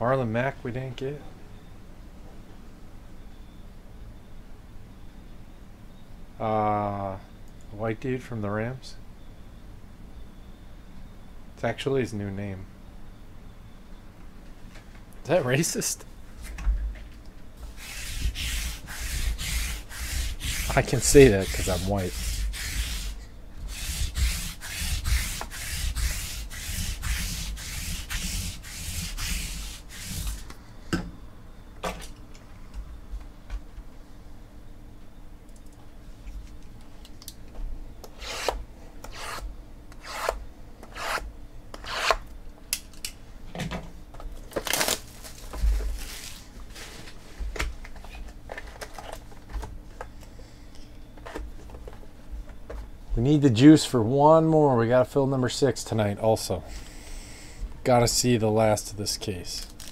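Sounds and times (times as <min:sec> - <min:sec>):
lint roller rubbing on cloth: 0:17.6 - 0:30.5
foil pack crinkling and tearing: 0:44.4 - 0:47.1, 0:59.6 - 0:59.9.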